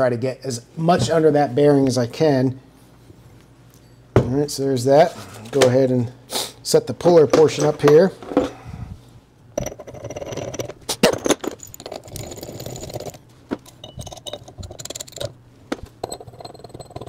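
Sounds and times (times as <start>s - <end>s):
steel parts clinking and scraping: 9.6s - 17.0s.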